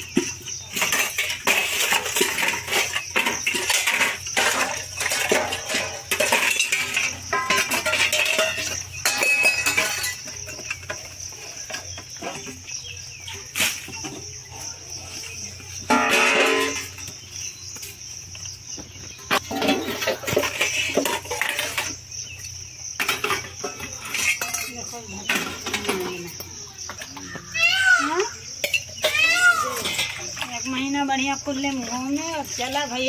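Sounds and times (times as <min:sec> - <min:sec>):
steel dishes clinking and scraping: 0:00.2 - 0:12.6, 0:15.8 - 0:17.1, 0:19.3 - 0:22.0, 0:23.0 - 0:26.2, 0:28.6 - 0:30.5.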